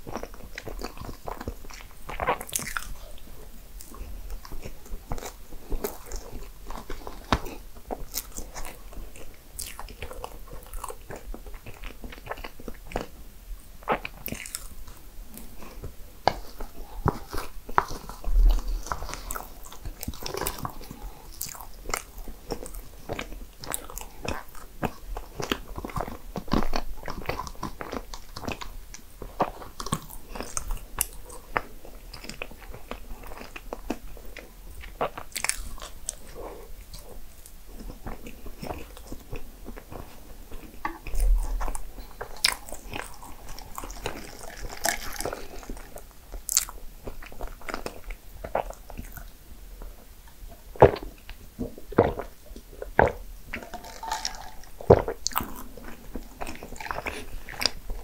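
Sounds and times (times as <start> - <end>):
person chewing crunchy food: 0.0 - 58.0.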